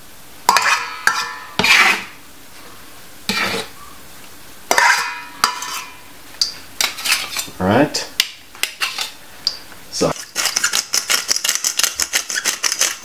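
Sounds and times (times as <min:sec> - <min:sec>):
knife scraping metal bowl: 0:00.5 - 0:02.2, 0:03.3 - 0:03.8, 0:04.7 - 0:06.0, 0:06.8 - 0:07.5, 0:08.6 - 0:09.2, 0:10.1 - 0:13.0.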